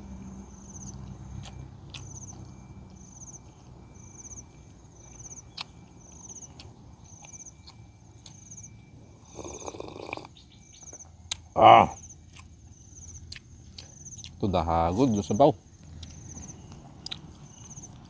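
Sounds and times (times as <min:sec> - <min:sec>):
insect chirping trills: 0:00.0 - 0:18.0
mouth clicks from chewing: 0:05.5 - 0:08.4, 0:15.8 - 0:18.0.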